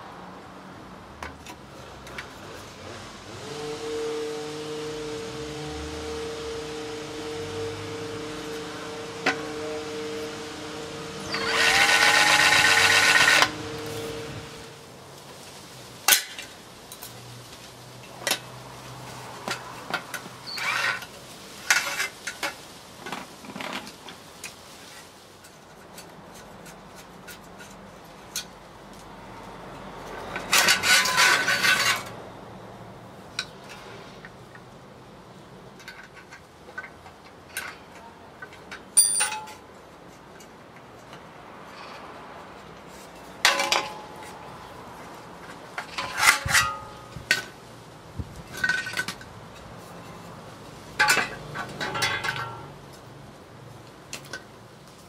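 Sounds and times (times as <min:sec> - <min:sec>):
cordless drill spinning up: 0:05.2 - 0:14.7
metal parts and hand tools clicking: 0:11.2 - 0:14.7, 0:19.2 - 0:29.2, 0:30.0 - 0:32.2, 0:35.6 - 0:47.6, 0:48.4 - 0:53.1.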